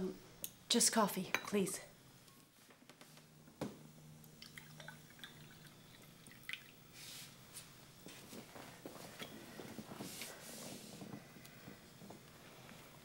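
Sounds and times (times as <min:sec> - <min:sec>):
room hum: 0:00.0 - 0:13.0
coffee pouring into cup: 0:04.4 - 0:06.8.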